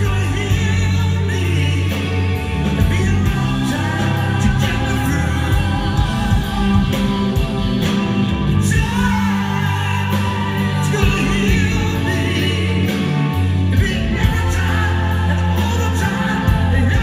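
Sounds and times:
person singing: 0:00.0 - 0:17.0
rock band playing: 0:00.0 - 0:17.0.

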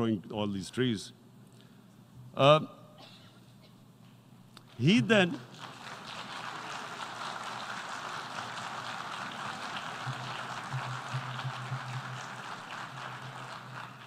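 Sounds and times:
audience applauding: 0:05.2 - 0:14.0.

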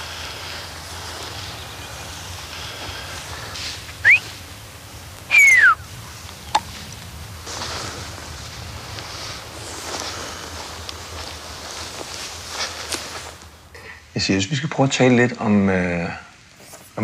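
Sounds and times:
person whistling: 0:04.0 - 0:04.3, 0:05.3 - 0:05.8.

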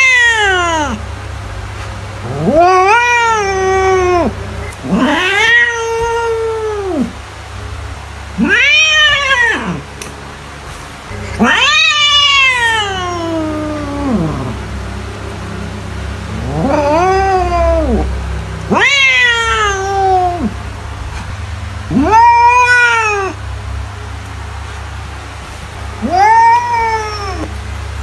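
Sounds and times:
cat meowing: 0:00.0 - 0:01.0, 0:02.2 - 0:07.2, 0:08.4 - 0:09.9, 0:11.1 - 0:21.3, 0:21.9 - 0:23.4, 0:25.9 - 0:27.5.

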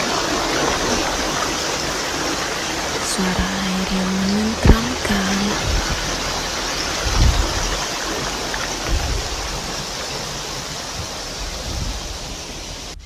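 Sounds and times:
stream rushing over rocks: 0:00.0 - 0:13.0
low thumps: 0:03.4 - 0:09.9.

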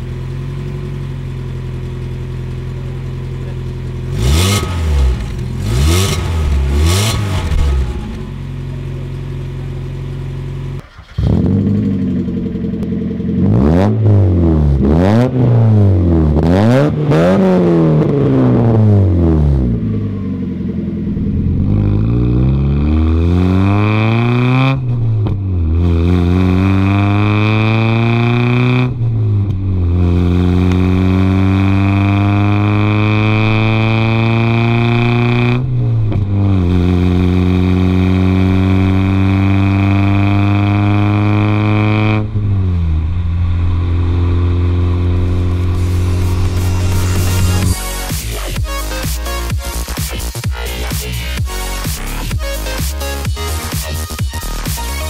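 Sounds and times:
car engine idling: 0:00.0 - 0:23.4, 0:41.1 - 0:55.0
car engine revving: 0:00.0 - 0:55.0
car accelerating with upshifts: 0:03.4 - 0:08.8, 0:10.6 - 0:54.1.

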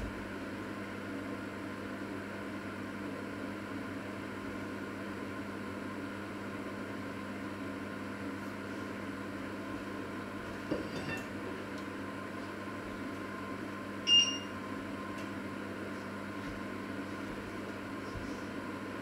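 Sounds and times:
kitchen mechanical hum: 0:00.0 - 0:19.0.

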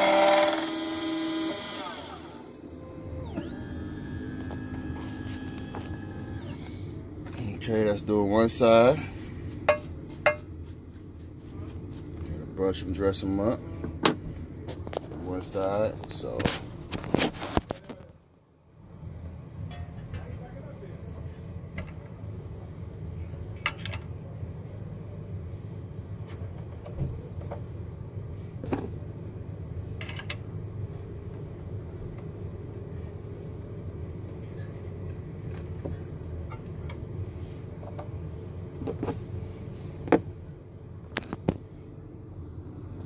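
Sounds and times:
key-cutting machine humming: 0:00.0 - 0:06.8.

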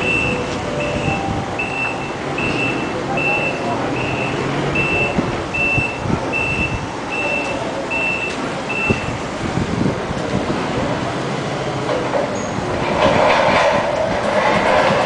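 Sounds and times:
reversing alarm beeps: 0:00.0 - 0:09.2
forklift engine running: 0:00.0 - 0:15.0.

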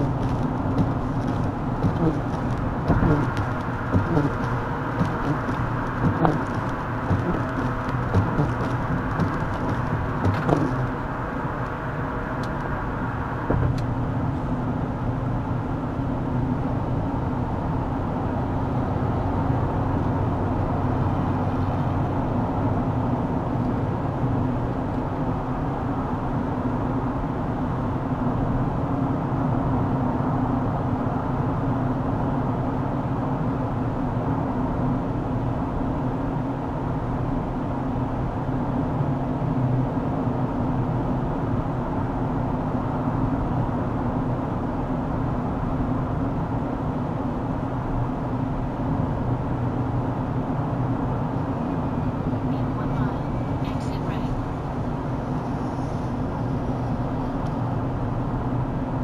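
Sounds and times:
car engine and road drone: 0:00.0 - 0:59.0.

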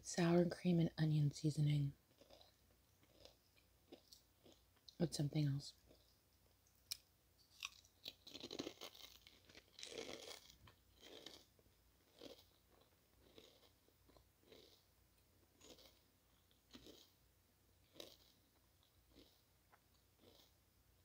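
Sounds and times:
potato chips crunching: 0:02.1 - 0:04.6, 0:06.9 - 0:14.8, 0:15.6 - 0:17.1, 0:17.9 - 0:20.5.

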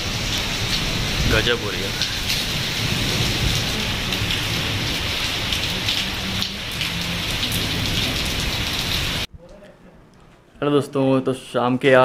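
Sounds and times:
heavy rain on pavement: 0:00.0 - 0:09.3
raindrops splashing: 0:00.0 - 0:09.3.

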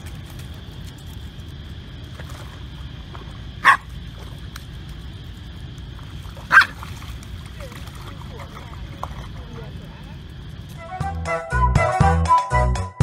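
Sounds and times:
dog barking: 0:03.6 - 0:03.8, 0:06.5 - 0:06.8.

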